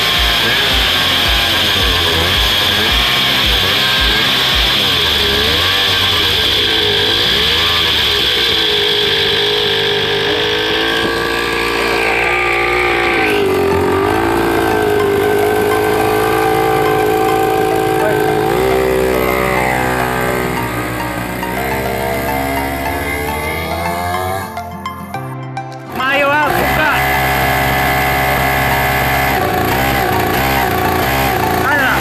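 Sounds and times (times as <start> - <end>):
two-stroke engine revving: 0.0 - 25.0, 25.9 - 32.0.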